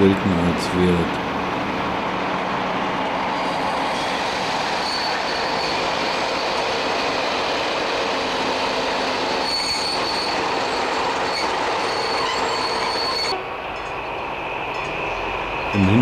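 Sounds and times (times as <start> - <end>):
diesel locomotive rumbling past: 0.0 - 16.0
high wheel squeal: 3.1 - 13.6.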